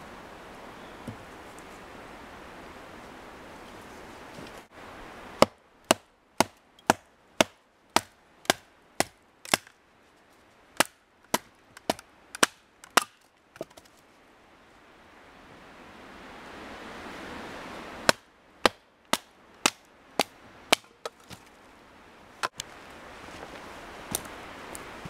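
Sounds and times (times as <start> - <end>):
knife chopping into wood: 5.4 - 9.7.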